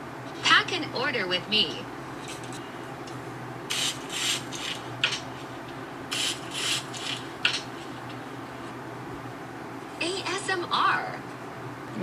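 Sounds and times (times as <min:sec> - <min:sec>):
scratchy rubbing and rustling: 0:03.7 - 0:08.2.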